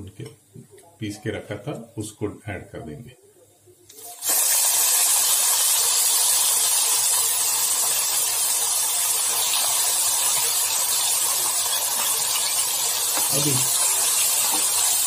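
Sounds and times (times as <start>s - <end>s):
paste sizzling in hot oil: 4.0s - 15.0s.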